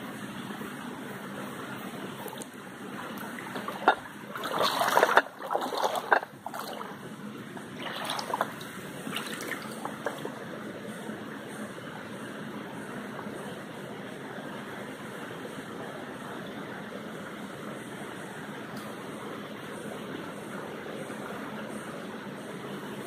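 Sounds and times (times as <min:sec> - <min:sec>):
shallow stream trickling: 0:00.0 - 0:23.0
dog splashing through water: 0:04.4 - 0:06.9.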